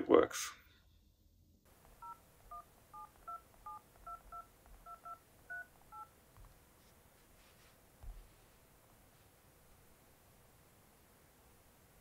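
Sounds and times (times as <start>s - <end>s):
phone keypad beeps: 2.0s - 6.1s.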